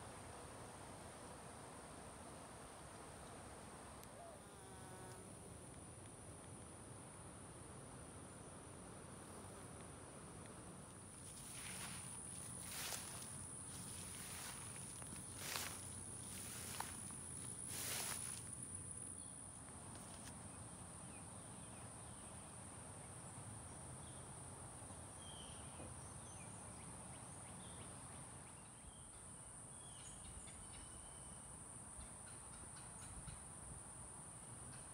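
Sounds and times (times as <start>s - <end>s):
steady high-pitched whine: 0.0s - 19.6s.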